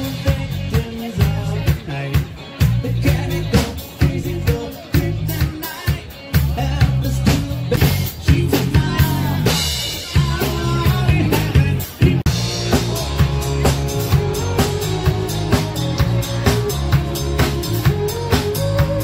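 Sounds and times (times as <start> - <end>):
person singing into a microphone: 0.0 - 12.2
drum kit beat: 0.0 - 19.0
electric bass: 0.0 - 19.0
keyboard: 0.0 - 19.0.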